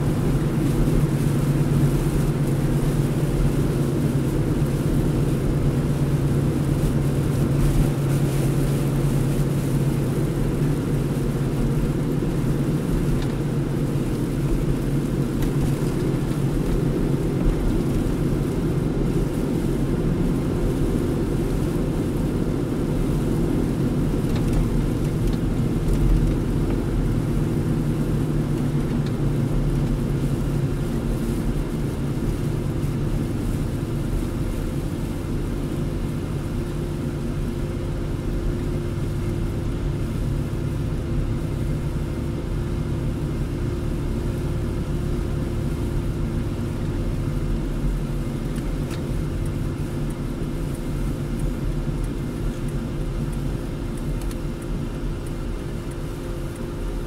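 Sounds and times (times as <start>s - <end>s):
engine and tyre rumble: 0.0s - 57.0s.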